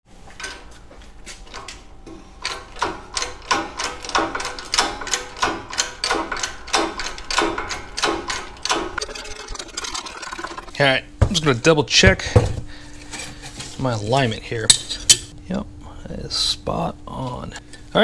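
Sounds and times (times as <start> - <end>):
hand pump metallic clicks: 2.4 - 10.0.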